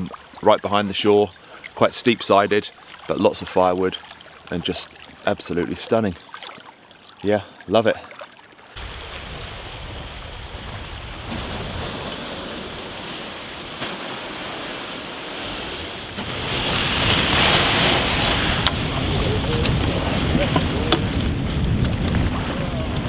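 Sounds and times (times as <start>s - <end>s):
small waves washing on shore: 0.0s - 23.0s
wind buffeting microphone: 15.5s - 23.0s.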